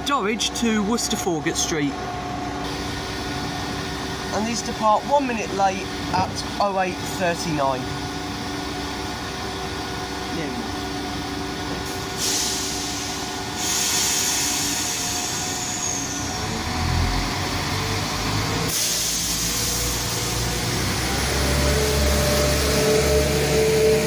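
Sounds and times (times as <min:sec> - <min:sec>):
train diesel engine humming: 0:00.0 - 0:24.0
compressed air hissing: 0:12.1 - 0:16.4, 0:18.7 - 0:20.5.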